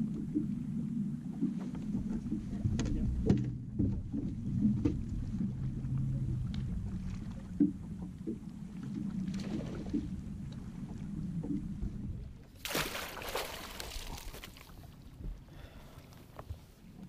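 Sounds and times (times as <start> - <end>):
boat low rumble: 0.0 - 17.0
rush of water and wind: 9.1 - 17.0
water splash: 12.6 - 14.8.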